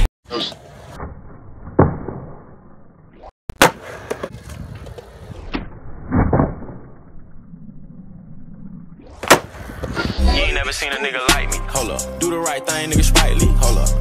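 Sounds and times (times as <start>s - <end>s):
skateboard wheels rolling on concrete: 0.4s - 7.7s, 8.5s - 11.4s.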